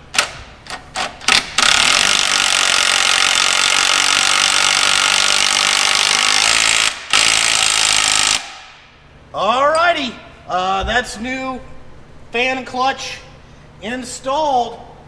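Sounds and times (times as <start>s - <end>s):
impact wrench running: 1.0s - 8.8s.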